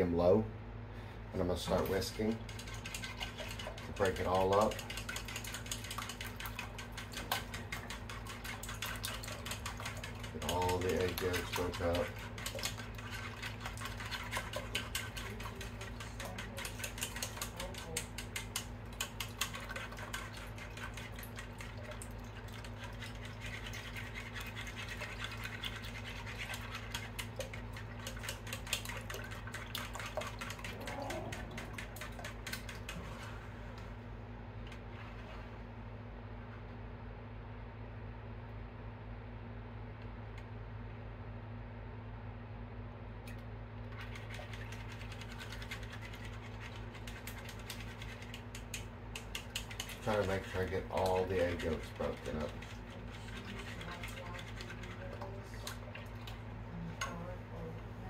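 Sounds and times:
low steady hum: 0.0 - 58.0
whisk clicking against pot: 2.3 - 33.1, 44.0 - 56.4.

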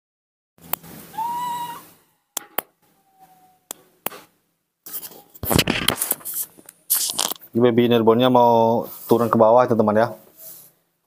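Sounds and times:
baby monkey cooing: 1.1 - 2.0, 3.0 - 3.7.

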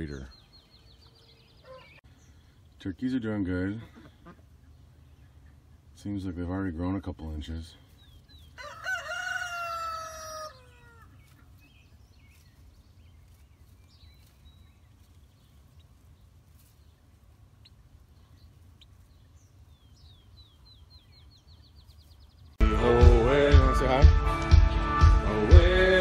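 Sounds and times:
turkey poults peeping: 0.0 - 2.5, 3.4 - 6.8, 7.9 - 22.5
rooster crowing: 8.6 - 11.1.

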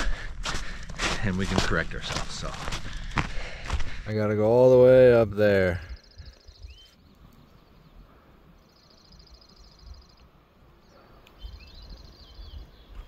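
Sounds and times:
bird chirps rising: 8.6 - 10.3.

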